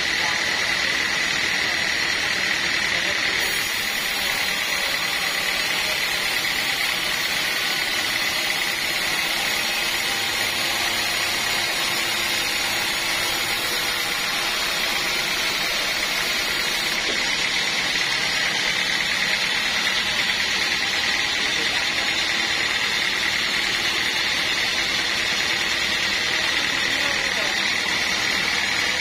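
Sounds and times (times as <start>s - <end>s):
band saw cutting wood: 0.0s - 29.0s.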